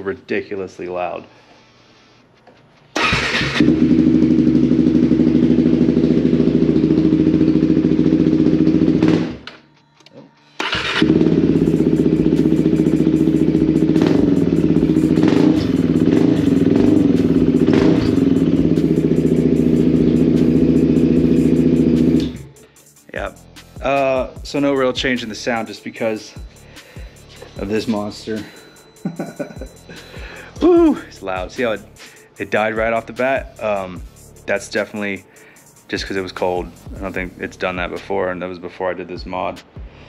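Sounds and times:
motorcycle engine idling: 3.1 - 9.4, 10.7 - 22.6.

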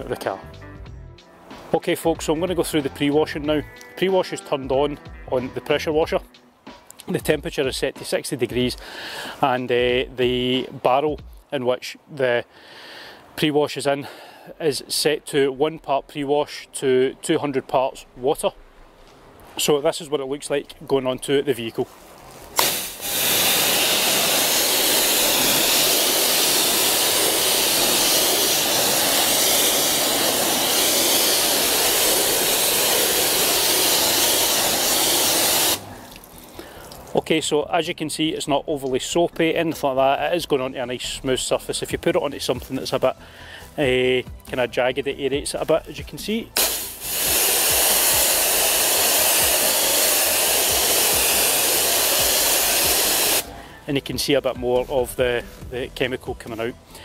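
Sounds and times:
pressure washer spraying: 22.6 - 36.2, 46.6 - 53.5.

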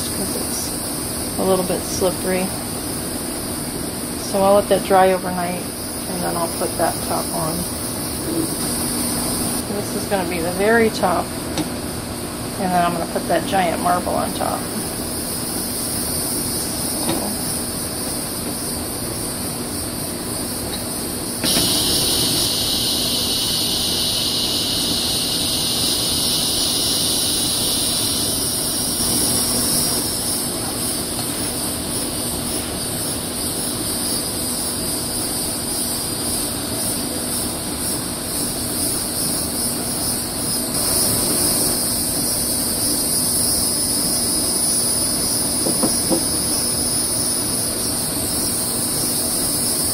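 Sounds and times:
shrill insect chorus: 0.0 - 11.3, 13.5 - 49.9
lower-pitched insect buzzing: 21.3 - 49.9.

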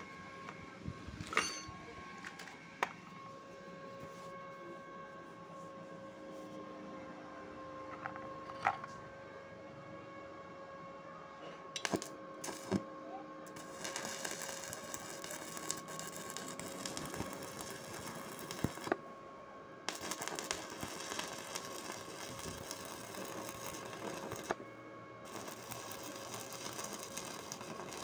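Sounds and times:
welding arc crackling: 11.8 - 12.8, 13.5 - 19.0, 19.9 - 24.6, 25.2 - 28.0.

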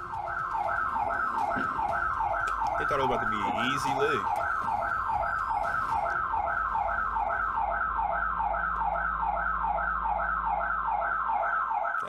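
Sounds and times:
alarm siren whooping: 0.0 - 12.0.

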